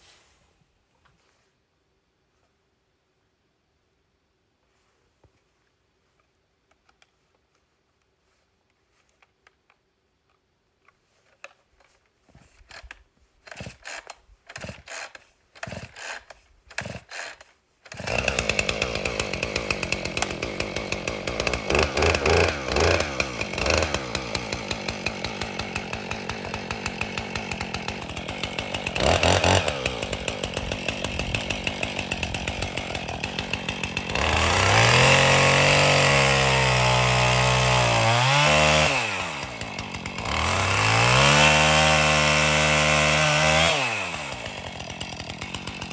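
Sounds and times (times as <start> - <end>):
chainsaw starter clicks: 10.8 - 35.8, 43.5 - 45.9
chainsaw pull-start sputtering: 11.3 - 45.9
chainsaw revving: 12.7 - 45.9
chainsaw engine idling: 13.5 - 45.9.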